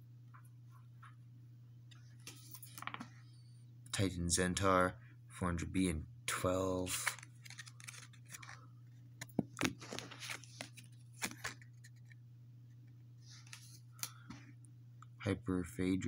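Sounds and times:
cards clicking and rustling: 0:06.9 - 0:12.2, 0:13.3 - 0:14.4.

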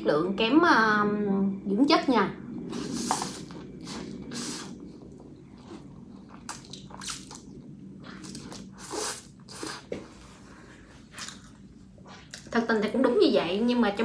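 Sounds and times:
wet chewing: 0:02.7 - 0:09.9
slurping noodles: 0:02.7 - 0:10.4.

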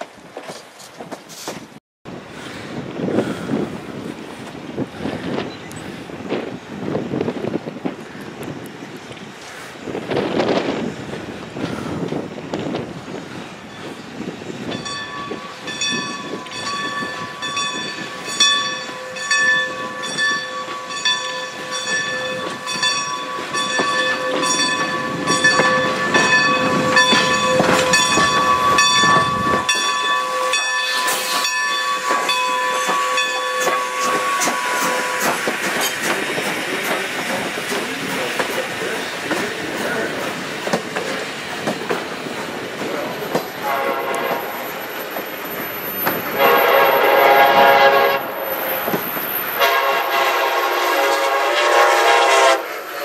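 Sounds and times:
passenger coaches rolling by: 0:00.0 - 0:53.0
high ringing whistle chord: 0:14.7 - 0:35.2
steam locomotive exhaust chuffs: 0:20.9 - 0:53.0.

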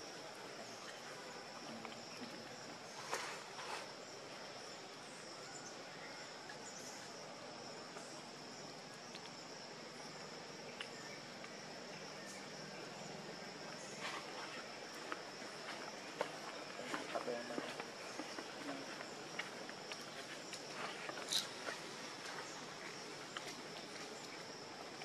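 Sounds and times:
insects droning: 0:00.0 - 0:25.0
faint clicks: 0:09.0 - 0:09.4.

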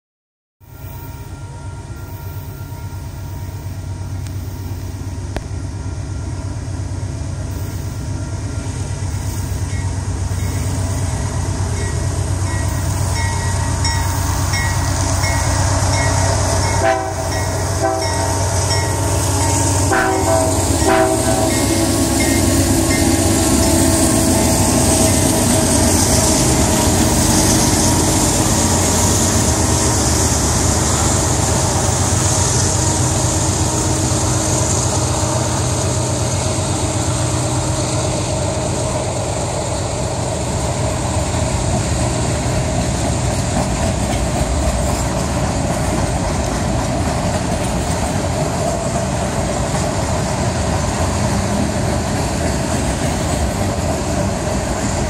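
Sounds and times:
train horn blasts: 0:00.6 - 0:06.6, 0:15.2 - 0:25.6
freight train passing: 0:00.6 - 0:55.0.

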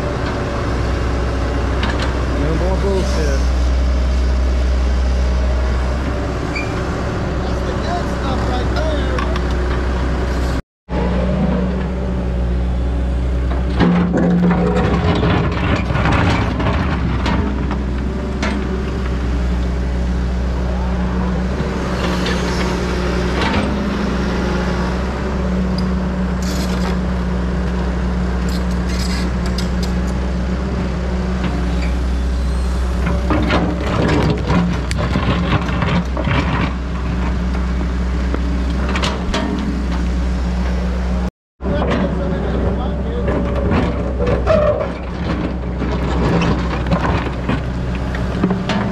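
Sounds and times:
diesel engine running: 0:00.0 - 0:48.9
bucket digging clatter and scraping: 0:13.6 - 0:17.8, 0:33.0 - 0:37.4.

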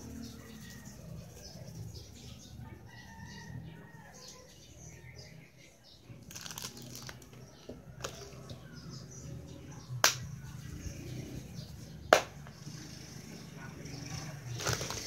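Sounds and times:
sharp hand claps: 0:10.0 - 0:10.3, 0:12.1 - 0:12.4.

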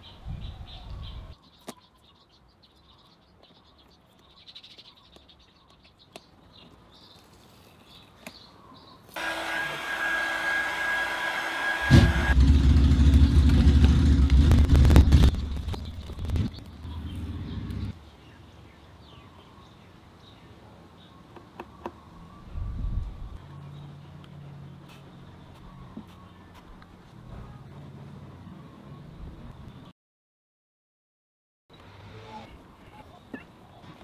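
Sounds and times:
heat gun fan hiss: 0:09.2 - 0:12.4
low rumble with sharp crackles: 0:12.3 - 0:17.9.

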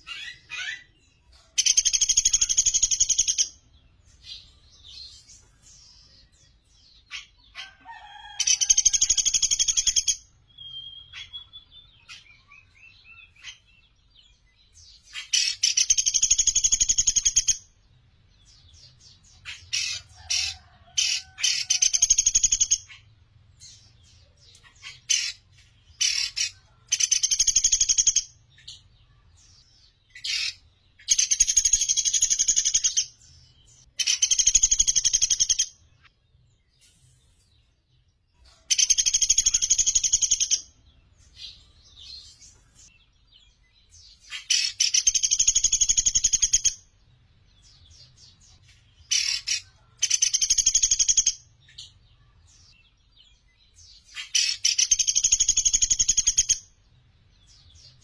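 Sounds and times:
woodpecker high-pitched trills: 0:01.6 - 0:03.6, 0:19.5 - 0:23.1, 0:26.0 - 0:28.7, 0:34.0 - 0:35.7, 0:38.7 - 0:40.8, 0:44.3 - 0:46.8, 0:49.1 - 0:51.5, 0:54.1 - 0:56.7.

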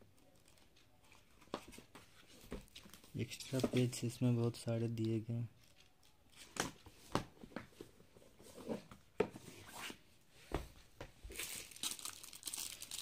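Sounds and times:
plastic wrap crinkling: 0:11.3 - 0:13.0.

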